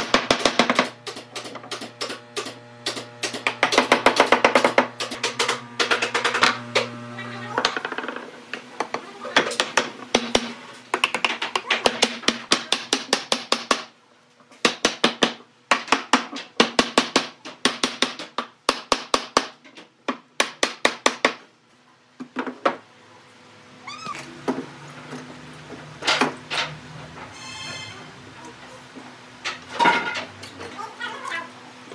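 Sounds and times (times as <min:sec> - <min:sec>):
short squeaking glide: 0:27.3 - 0:28.1.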